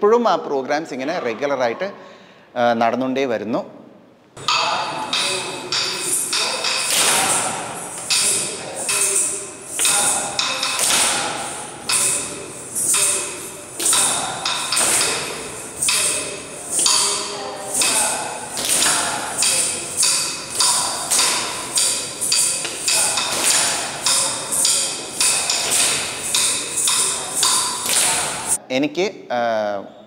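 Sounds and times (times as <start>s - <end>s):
wooden stick knocks: 4.4s - 17.2s, 17.8s - 28.6s.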